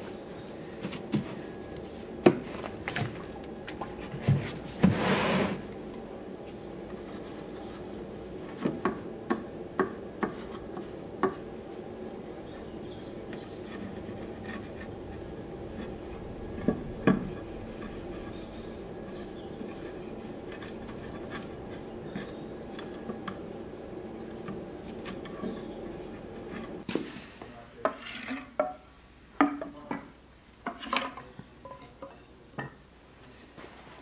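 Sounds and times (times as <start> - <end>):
steady low hum: 0.0 - 26.9
light rubbing: 10.2 - 26.9.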